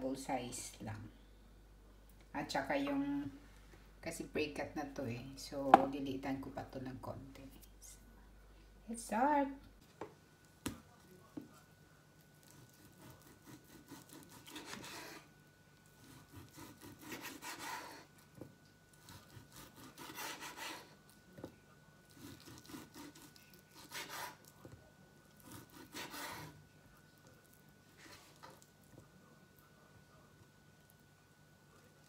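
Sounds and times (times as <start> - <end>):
knife sawing through meat: 12.4 - 15.3, 16.0 - 18.1, 19.0 - 21.0, 22.1 - 24.5, 25.4 - 26.6.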